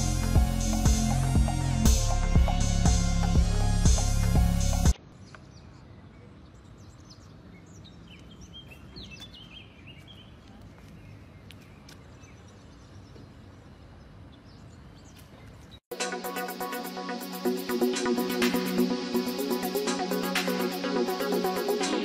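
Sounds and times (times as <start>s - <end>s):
faint outdoor ambient noise: 0.1s - 22.0s
birds chirping: 4.9s - 22.0s.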